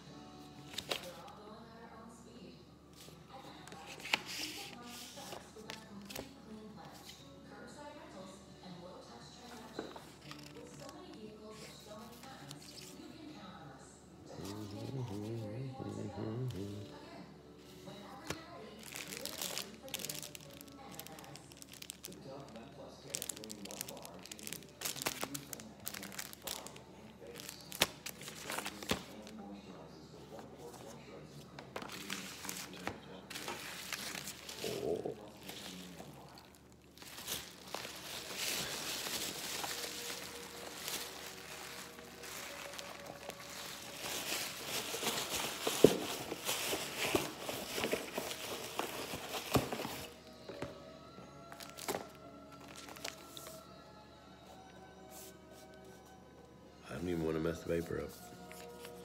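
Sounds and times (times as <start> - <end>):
paper envelopes rustling: 0.6 - 1.3, 3.0 - 7.2, 9.5 - 13.1, 17.6 - 29.4, 30.3 - 50.8, 51.5 - 53.6, 57.7 - 59.0.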